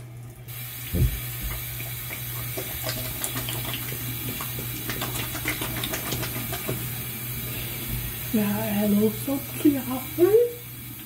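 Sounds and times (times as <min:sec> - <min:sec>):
sink tap running: 0:00.0 - 0:11.0
water splashing on face: 0:00.6 - 0:07.2.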